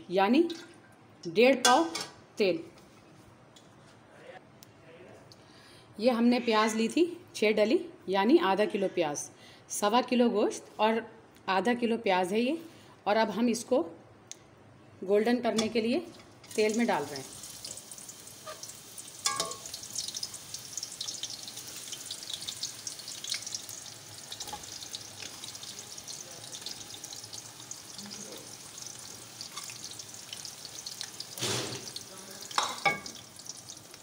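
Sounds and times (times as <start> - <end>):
onions sizzling in hot oil: 16.4 - 34.0.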